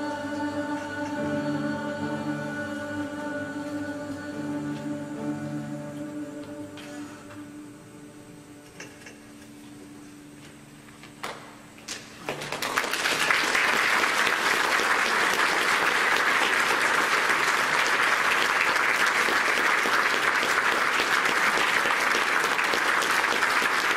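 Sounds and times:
audience applauding: 12.2s - 23.9s.

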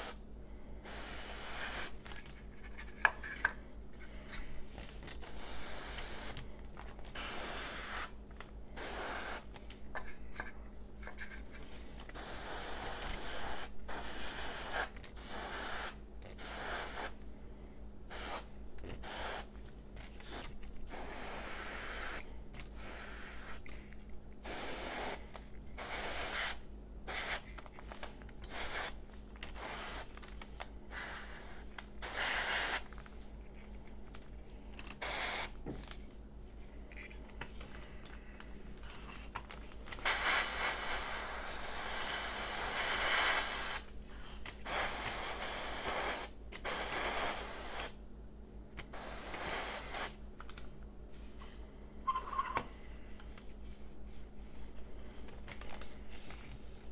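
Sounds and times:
airbrush spraying hiss: 0.0s - 0.2s, 0.8s - 2.0s, 5.2s - 6.4s, 7.1s - 8.2s, 8.8s - 9.5s, 12.2s - 17.2s, 18.1s - 19.5s, 20.2s - 23.6s, 24.4s - 25.2s, 25.8s - 27.4s, 28.5s - 29.0s, 29.6s - 30.1s, 30.9s - 32.9s, 35.0s - 35.5s, 40.0s - 43.9s, 44.6s - 48.0s, 48.9s - 50.2s.

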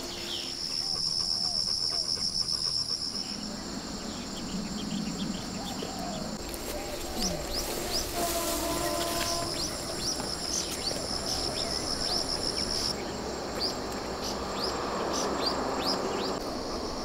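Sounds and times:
insect high trill: 0.0s - 13.4s
plants rustling: 6.4s - 11.6s.

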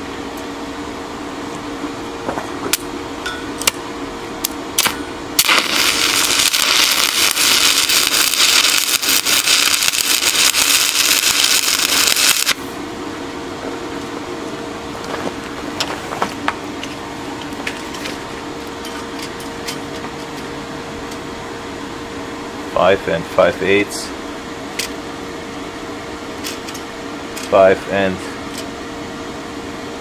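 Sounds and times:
welding arc crackling: 4.4s - 12.8s.

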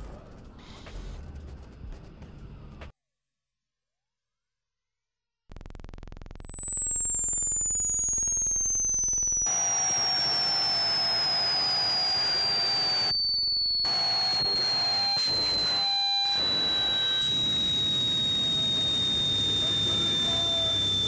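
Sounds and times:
high electronic tone sliding down: 2.9s - 21.0s
faint steady hum: 5.6s - 21.0s.

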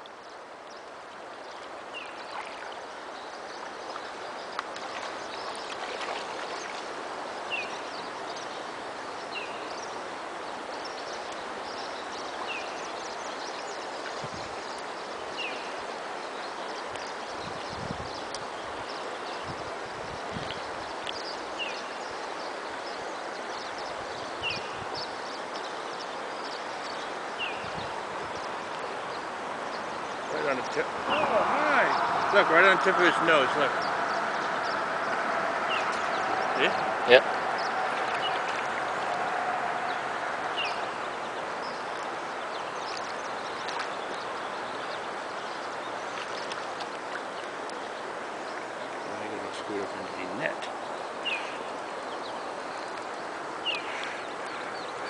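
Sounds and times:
river water flowing: 0.0s - 55.0s
light splashing: 1.5s - 7.9s, 30.2s - 41.1s
bird chirping: 20.2s - 46.6s, 48.4s - 55.0s.

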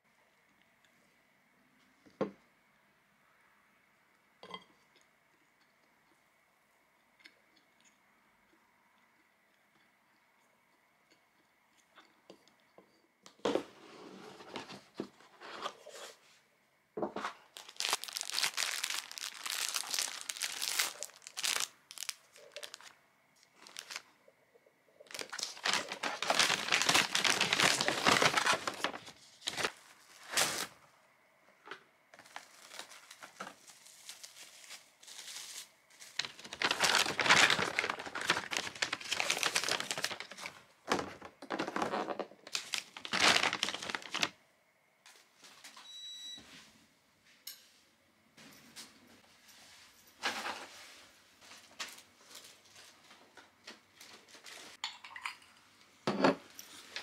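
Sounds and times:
packaging crinkling: 17.4s - 24.1s, 25.0s - 30.8s, 32.2s - 44.4s.

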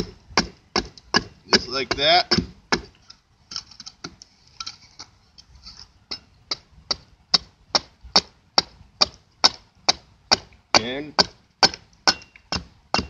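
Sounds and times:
axe chopping wooden board: 0.0s - 2.9s, 8.6s - 13.0s.

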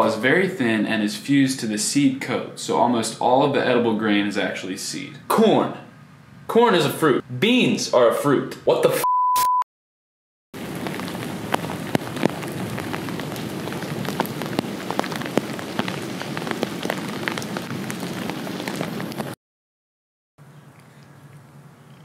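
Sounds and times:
censor bleep: 9.0s - 9.7s
rain falling into a puddle: 10.6s - 19.4s.

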